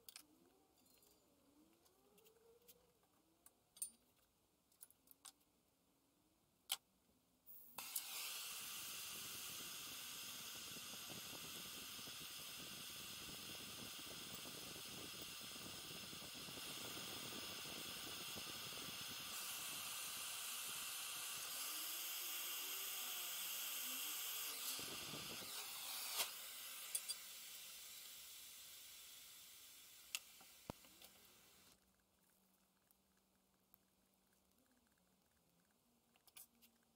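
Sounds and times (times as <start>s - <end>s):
brazing torch hissing: 7.8s - 31.7s.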